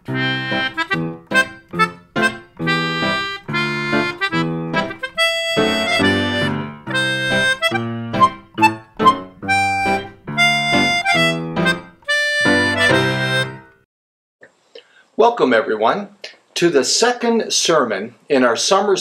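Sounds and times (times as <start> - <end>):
bouncy instrumental tune: 0.0 - 13.8.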